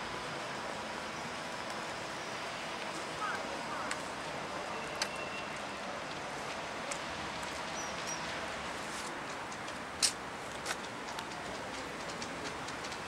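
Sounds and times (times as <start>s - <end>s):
raindrop ticks on hard surfaces: 9.2s - 13.0s.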